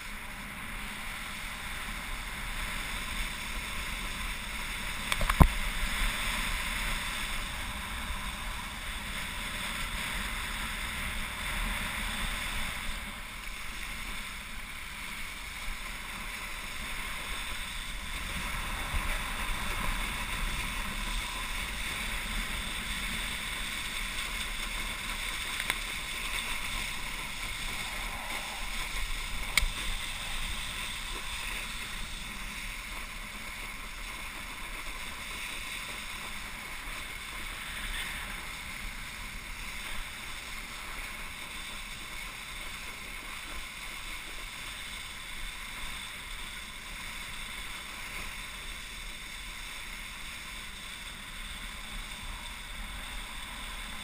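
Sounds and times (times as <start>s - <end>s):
wind: 0.0s - 54.0s
water spray rushing: 16.8s - 44.0s.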